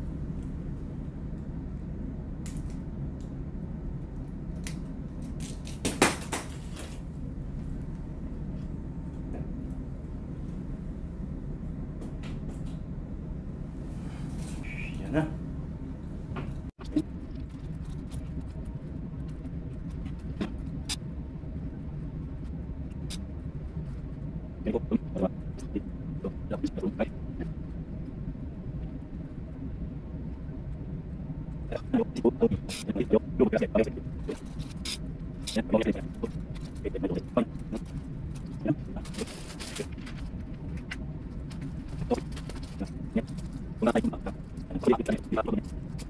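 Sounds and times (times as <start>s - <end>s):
low machinery hum: 0.0s - 46.0s.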